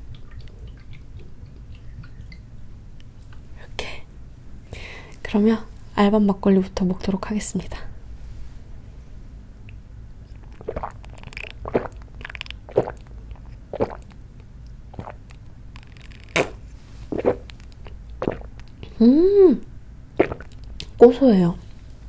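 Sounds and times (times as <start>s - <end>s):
person gulping and swallowing: 10.2s - 20.9s
person sighing ahh: 18.9s - 19.6s.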